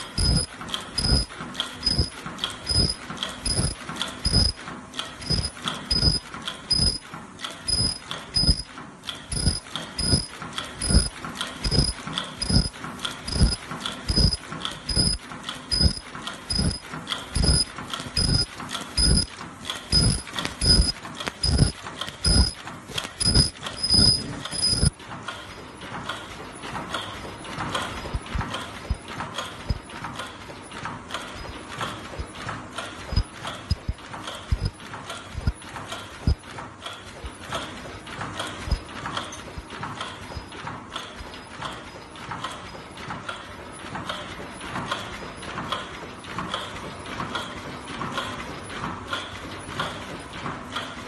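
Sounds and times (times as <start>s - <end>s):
machine mechanisms clacking: 0.0s - 51.0s
heavy thumps with ringing tone: 0.2s - 4.6s, 5.2s - 7.0s, 7.7s - 8.7s, 9.3s - 19.3s, 19.9s - 22.6s, 23.2s - 25.0s, 33.1s - 34.8s.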